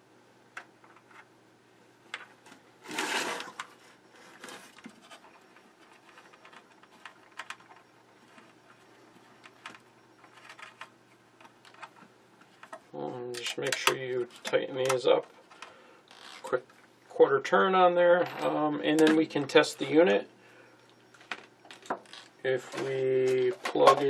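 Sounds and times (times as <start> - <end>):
metal unit scraping on workbench: 2.8 - 3.6.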